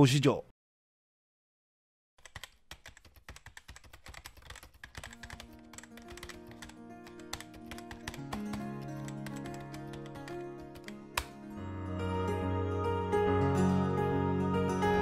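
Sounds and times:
rapid keyboard typing clicks: 2.2 - 11.4
music with held notes: 5.2 - 15.0.

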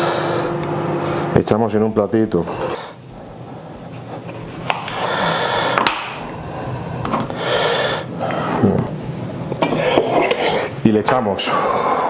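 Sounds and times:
low steady hum: 0.0 - 12.0
rustling and scraping: 3.8 - 5.2, 9.6 - 10.7.

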